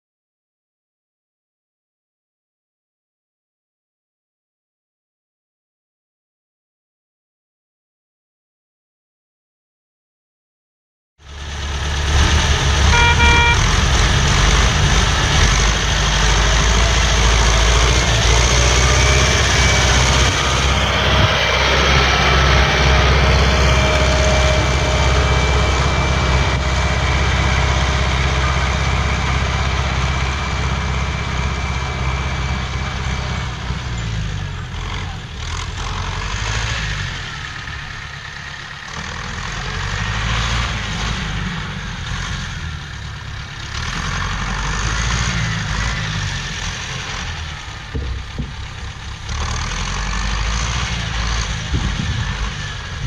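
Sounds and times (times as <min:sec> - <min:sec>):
tractor diesel engine running: 0:11.2 - 0:53.0
short horn toot: 0:12.8 - 0:14.0.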